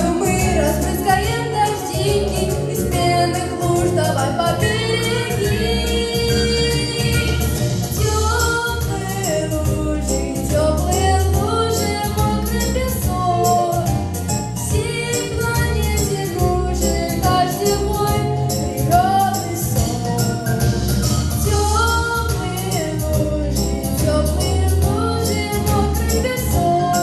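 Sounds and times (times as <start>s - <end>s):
backing track with heavy bass: 0.0s - 27.0s.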